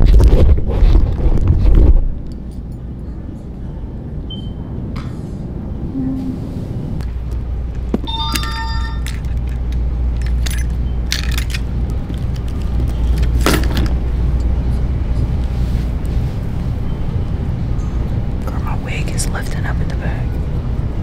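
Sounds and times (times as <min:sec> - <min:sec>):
steady low rumble: 0:00.0 - 0:21.0
metallic ring: 0:08.1 - 0:09.3
keys jangling: 0:08.1 - 0:14.0.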